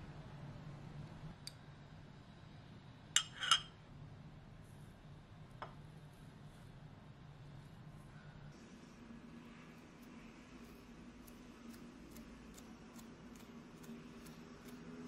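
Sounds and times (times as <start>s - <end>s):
low steady hum: 0.0s - 15.0s
spoon or cup clattering on countertop: 3.2s - 3.7s.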